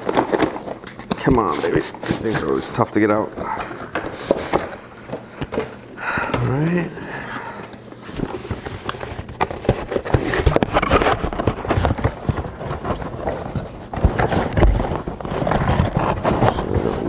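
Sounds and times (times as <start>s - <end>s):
cardboard scraping and rustling: 0.0s - 4.8s, 8.0s - 17.0s.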